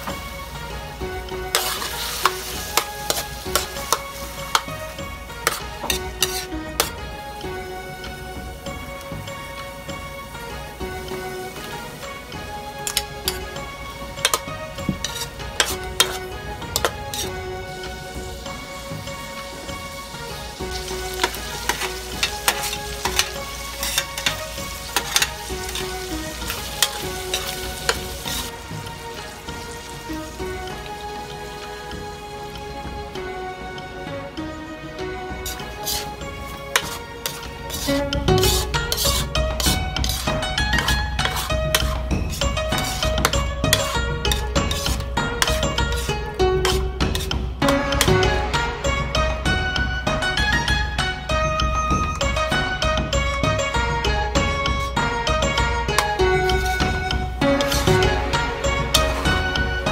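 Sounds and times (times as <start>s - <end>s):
metal spatula scraping a wok: 0.0s - 7.8s, 8.6s - 30.8s, 35.4s - 49.2s, 52.3s - 59.9s
shrimp sizzling in oil: 0.0s - 33.4s, 35.0s - 59.9s
background music: 0.0s - 59.9s.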